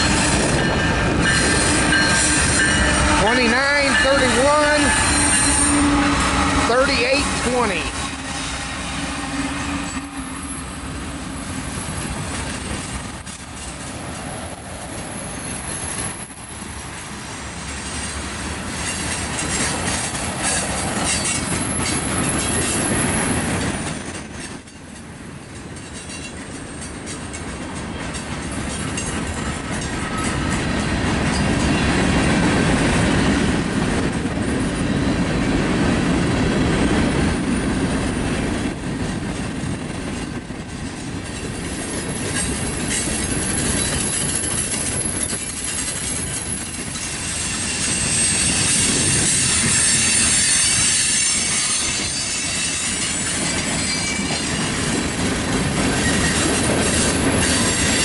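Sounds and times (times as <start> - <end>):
high wheel squeal: 0.0 - 6.8, 7.4 - 12.7, 14.9 - 16.6, 18.8 - 23.7, 41.6 - 54.9, 55.9 - 58.0
train wheels clattering over rail joints: 8.0 - 58.0.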